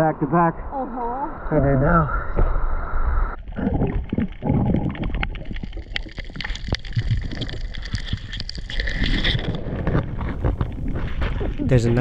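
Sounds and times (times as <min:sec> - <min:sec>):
muffled underwater rumble: 0:00.8 - 0:12.0
sharp underwater clicks and crackles: 0:03.3 - 0:12.0.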